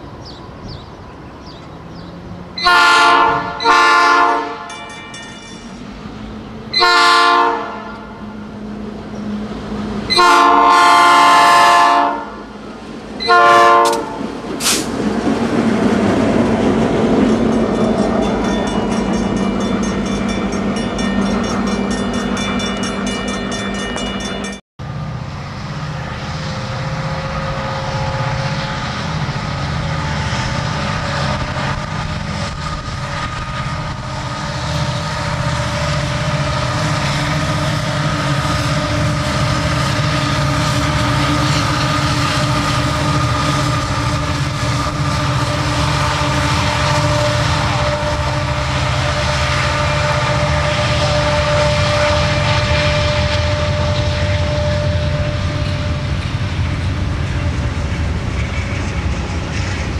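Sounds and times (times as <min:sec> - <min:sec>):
diesel locomotives running low: 0:00.0 - 0:59.9
train rumble and rail clatter: 0:00.0 - 0:59.9
locomotive air horn blasts: 0:02.6 - 0:04.8, 0:06.7 - 0:08.3, 0:10.1 - 0:12.5, 0:13.2 - 0:14.3, 0:44.7 - 0:56.6.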